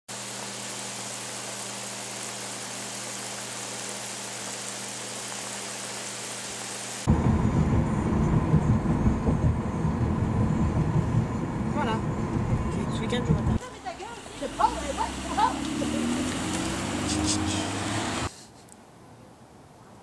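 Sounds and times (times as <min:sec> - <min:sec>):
steady hiss: 0:00.1 - 0:07.1
car rumbling from inside cabin: 0:07.1 - 0:18.3.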